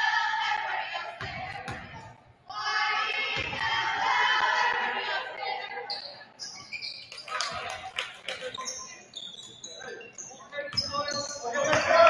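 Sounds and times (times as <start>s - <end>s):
girls chanting in unison: 0.0s - 5.9s.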